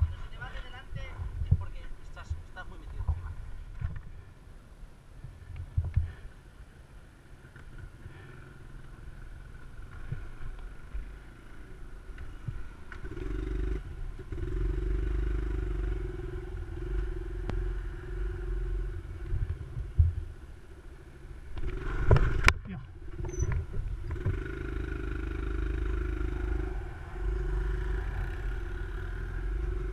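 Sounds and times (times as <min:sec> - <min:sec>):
motorcycle engine running: 0:07.9 - 0:29.9.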